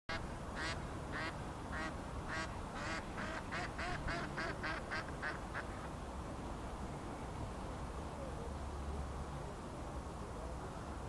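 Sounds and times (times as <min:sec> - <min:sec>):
duck quacking: 0:00.6 - 0:05.8.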